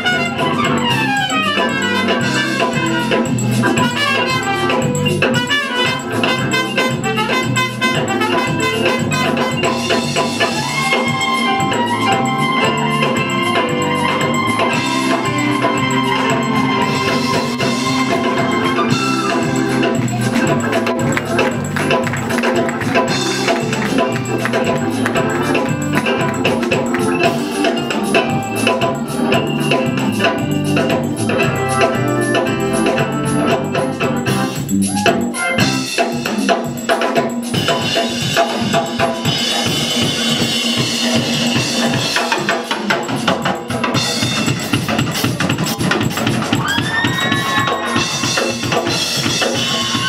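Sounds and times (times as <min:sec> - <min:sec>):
trumpet holding a note: 0:00.0 - 0:09.6
organ chords: 0:00.0 - 0:36.3
band playing soul-gospel music: 0:00.0 - 0:50.0.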